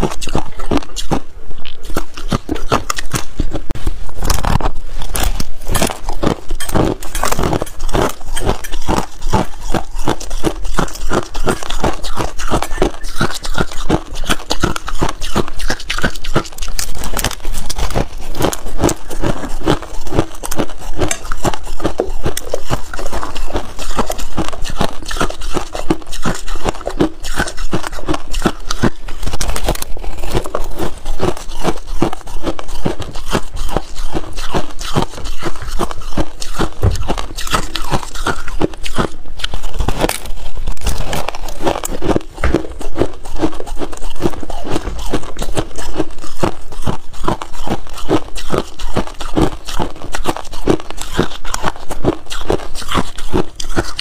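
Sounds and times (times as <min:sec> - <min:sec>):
crushed ice crunching: 0:27.3 - 0:54.0.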